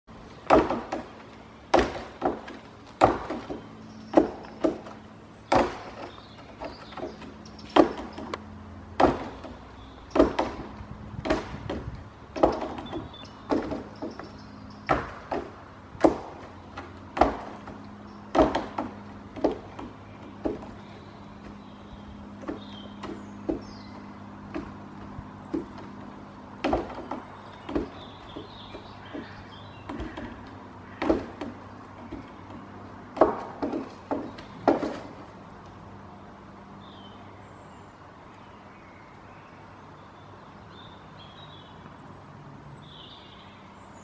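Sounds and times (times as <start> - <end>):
dead wood knocking: 0.4 - 14.3, 14.9 - 21.6, 22.4 - 35.2.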